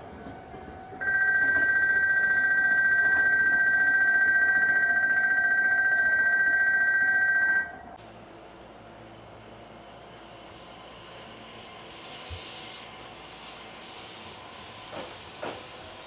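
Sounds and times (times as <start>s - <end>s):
two-tone electronic warning tone: 1.0s - 7.9s.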